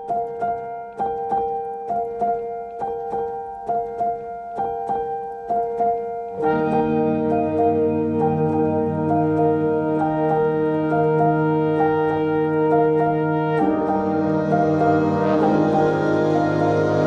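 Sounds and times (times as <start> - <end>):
soft piano music: 0.0 - 17.0.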